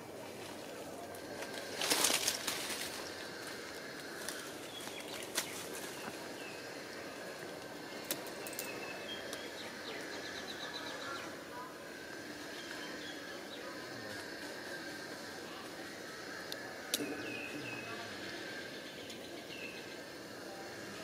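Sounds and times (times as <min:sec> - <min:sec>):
insects humming: 0:00.0 - 0:21.0
loud rustle: 0:01.3 - 0:06.2.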